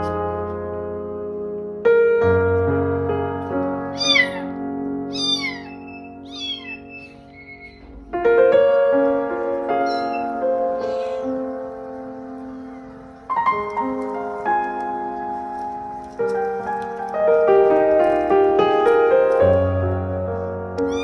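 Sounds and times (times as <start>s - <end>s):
piano background music: 0.0s - 21.0s
cat meowing: 4.0s - 7.9s, 9.8s - 11.4s, 20.8s - 21.0s.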